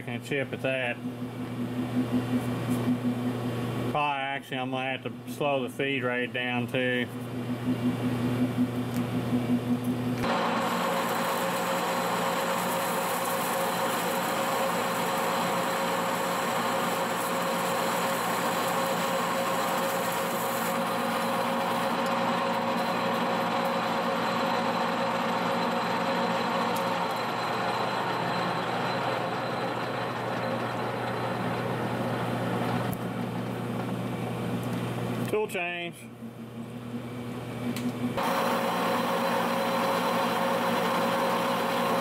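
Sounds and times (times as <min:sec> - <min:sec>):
lathe spindle drive running: 0:01.0 - 0:04.0, 0:07.2 - 0:35.3, 0:37.7 - 0:42.0
lathe tool cutting metal: 0:10.2 - 0:33.0, 0:38.2 - 0:42.0.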